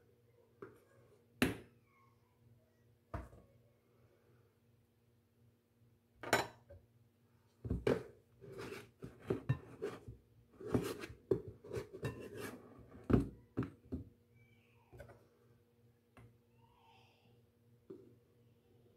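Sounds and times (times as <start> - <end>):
scraping and rustling: 7.9 - 13.1.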